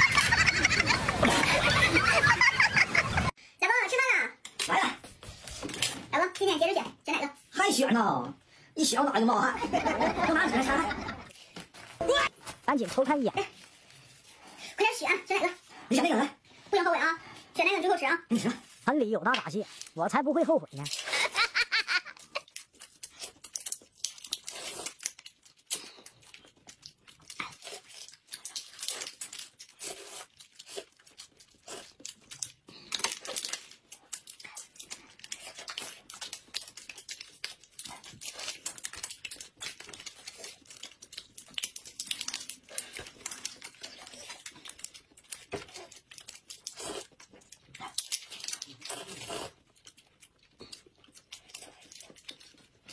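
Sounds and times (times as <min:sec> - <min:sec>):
plastic wrappers crinkling and tearing: 0:18.6 - 0:52.9.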